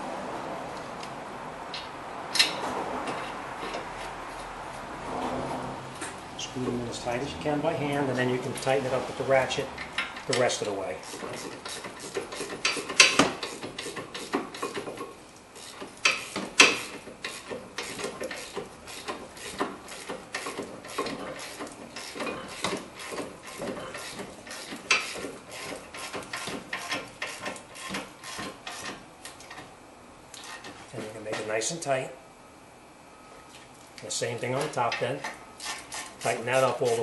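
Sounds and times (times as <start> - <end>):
hand ratchet clicking: 9.8 - 15.0, 15.6 - 29.6.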